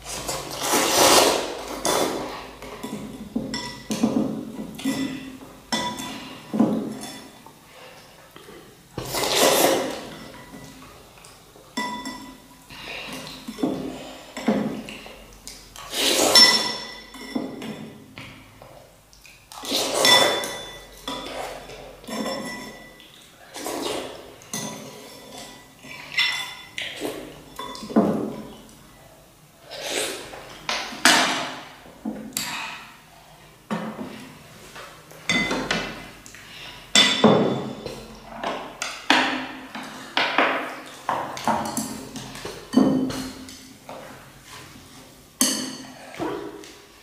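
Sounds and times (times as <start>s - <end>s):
utensils clinking on ceramic bowls: 1.6s - 7.4s, 9.3s - 18.3s, 19.7s - 23.3s, 24.4s - 28.6s, 35.2s - 36.2s, 36.8s - 44.6s, 45.4s - 46.4s.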